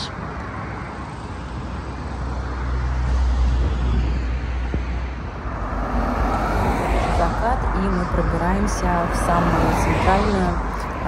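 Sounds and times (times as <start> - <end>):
road traffic hum: 0.0 - 11.0
low rumble: 3.5 - 11.0.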